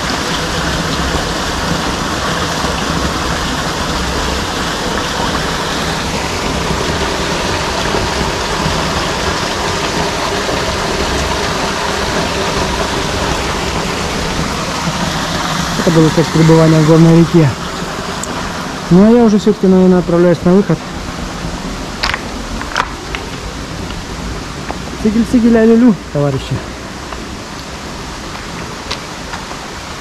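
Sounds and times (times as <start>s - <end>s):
waterfall rushing and splashing: 0.0s - 30.0s.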